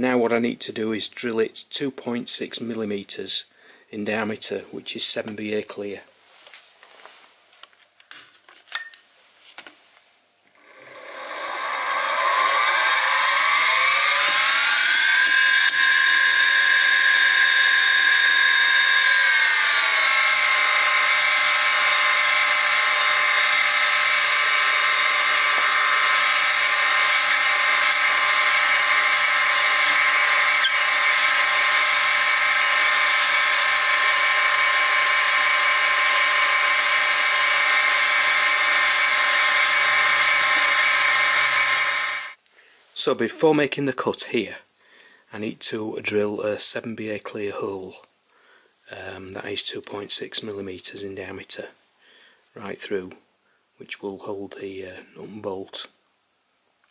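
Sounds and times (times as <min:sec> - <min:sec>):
mill spindle motor whine: 0:10.5 - 0:42.4.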